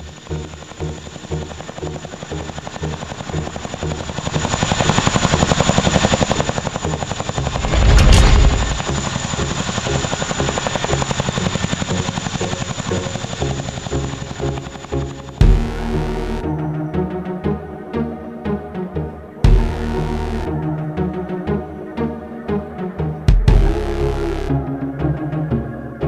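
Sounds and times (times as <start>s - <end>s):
helicopter rotors chopping: 0.4s - 15.8s
background music: 10.9s - 26.0s.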